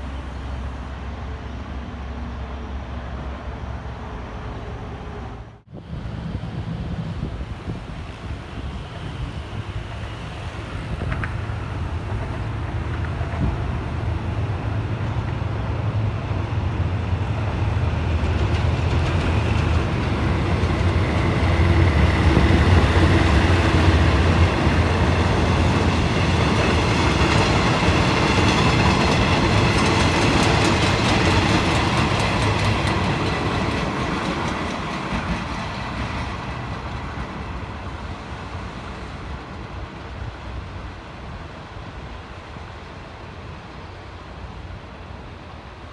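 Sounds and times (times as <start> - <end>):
train wheels clicking over rail joints: 10.9 - 13.8, 17.8 - 38.1.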